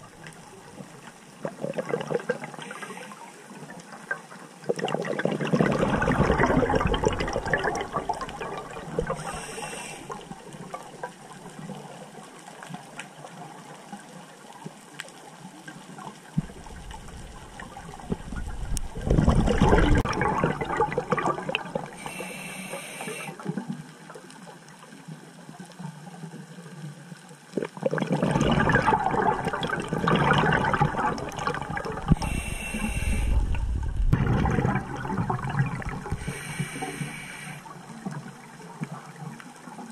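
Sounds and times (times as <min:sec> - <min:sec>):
exhaled bubbles underwater: 0:00.0 - 0:12.2, 0:16.1 - 0:24.4, 0:27.5 - 0:39.9
regulator inhalation hiss: 0:09.0 - 0:10.3, 0:22.0 - 0:23.4, 0:32.1 - 0:33.6, 0:36.1 - 0:37.7.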